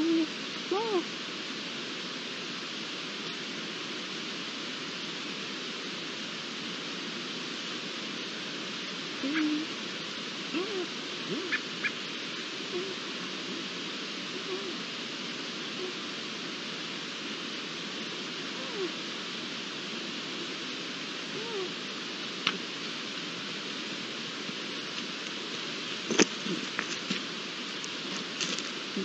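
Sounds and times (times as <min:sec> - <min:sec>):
steady hiss: 0:00.0 - 0:29.0
lynx mewing calls: 0:10.5 - 0:13.0.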